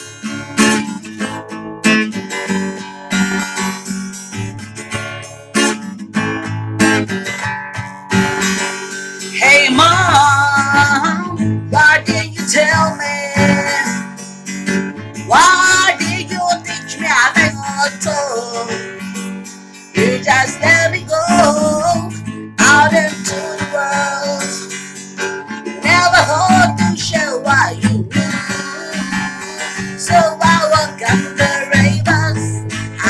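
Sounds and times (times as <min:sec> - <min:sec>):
acoustic guitar strumming: 0:00.0 - 0:33.0
woman singing: 0:09.3 - 0:14.3, 0:15.3 - 0:19.2, 0:19.9 - 0:33.0.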